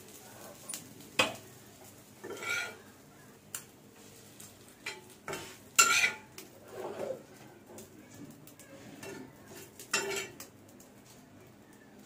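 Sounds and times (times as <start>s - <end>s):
metal spatula scraping griddle: 2.2s - 2.9s, 4.1s - 10.5s.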